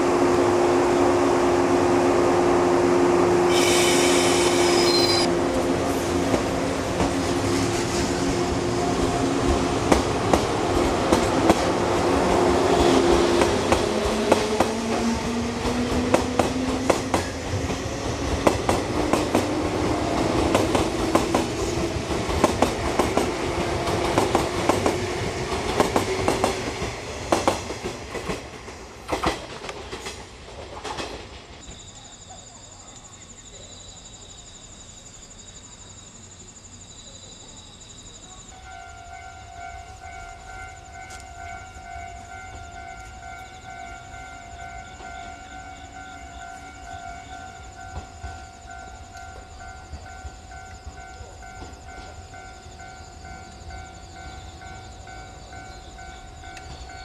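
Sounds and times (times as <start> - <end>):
high-pitched squeal: 3.5 - 5.4
electric train motors whining: 3.5 - 27.3
train wheels clacking over rail joints: 12.7 - 31.7.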